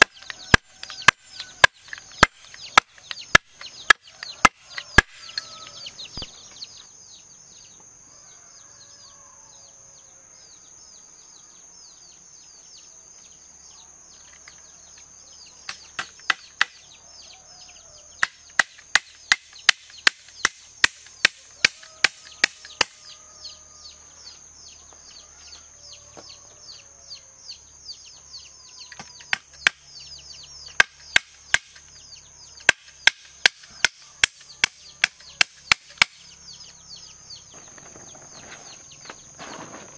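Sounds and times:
sharp chopping strikes: 0.0 - 5.4, 18.2 - 23.1, 30.7 - 31.9
birds chirping: 0.0 - 39.9.

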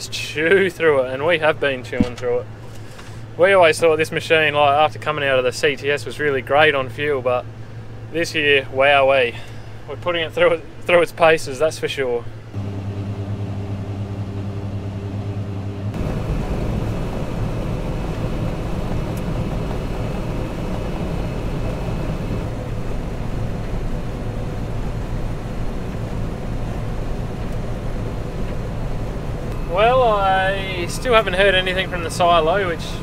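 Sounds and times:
combine harvester running: 12.5 - 33.0.

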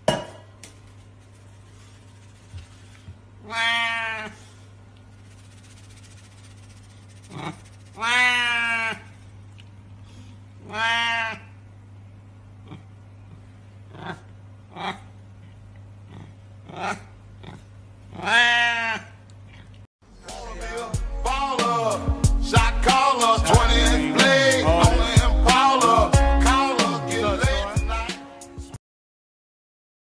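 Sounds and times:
cat meowing loudly: 3.4 - 4.4, 8.0 - 9.1, 10.6 - 11.5.

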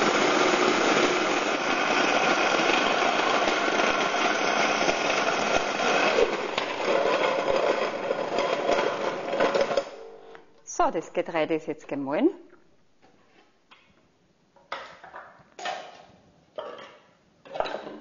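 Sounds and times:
grain mill grinding: 0.0 - 10.5.

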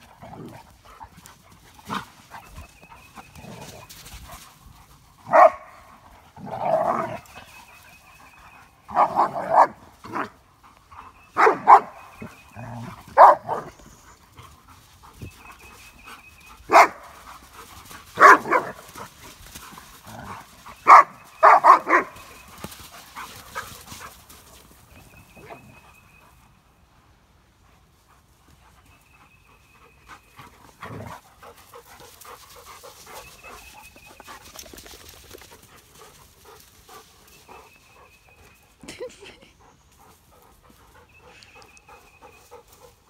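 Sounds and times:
dogs barking: 5.2 - 5.9, 8.8 - 10.4, 11.3 - 13.8, 16.7 - 17.2, 18.2 - 19.1, 20.2 - 22.4.

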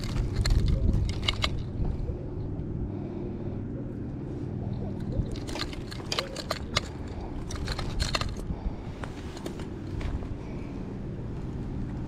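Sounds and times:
clicks and rustles of fishing gear: 0.0 - 2.1, 4.7 - 10.5
low background rumble: 0.0 - 12.0.

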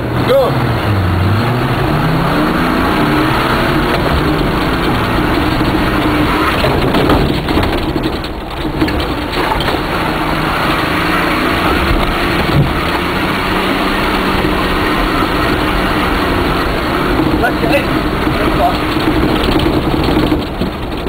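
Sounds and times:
off-road vehicle engine revving: 0.0 - 21.0
tyre and body noise: 0.2 - 21.0
vehicle knocks: 1.5 - 13.2, 17.0 - 21.0.

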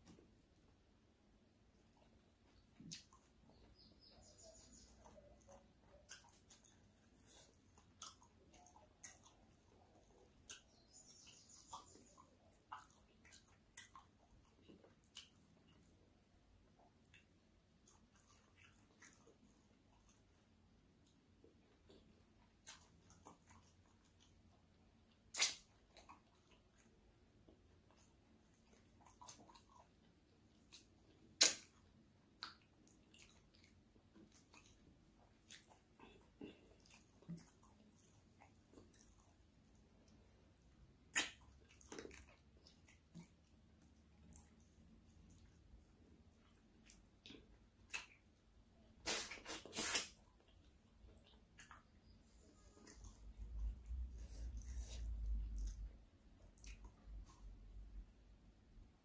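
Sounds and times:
wet chewing and lip smacks: 1.7 - 58.1
bird chirping: 3.4 - 5.6, 10.5 - 12.4
loud sharp mouth click: 25.3 - 25.7, 31.4 - 31.7, 49.0 - 50.2
wet smack of finger licking: 25.3 - 25.7, 31.4 - 31.8, 41.1 - 42.0.

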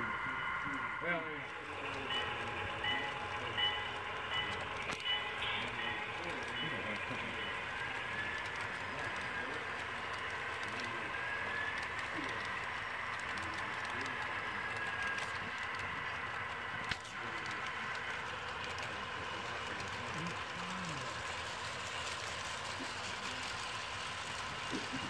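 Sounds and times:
model train wheels clicking: 0.2 - 25.0.

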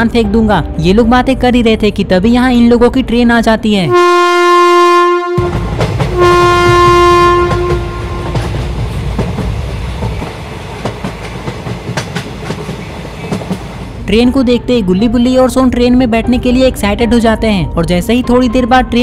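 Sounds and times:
train horn blasts: 3.9 - 8.6
train rumble and wheel clatter: 4.9 - 19.0.

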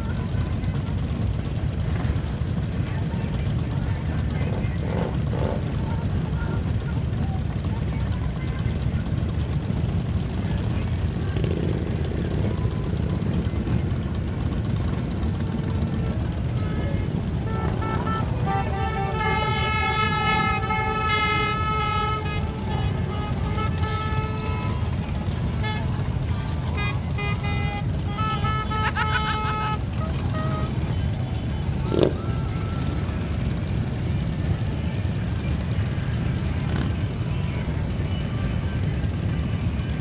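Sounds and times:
motorcycle engines rumbling: 0.0 - 40.0.

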